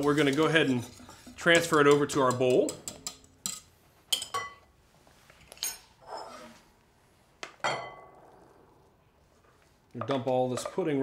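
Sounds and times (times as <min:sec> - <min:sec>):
kitchen utensils clinking on saucepan: 0:00.0 - 0:04.7
soft scrape: 0:04.8 - 0:07.2.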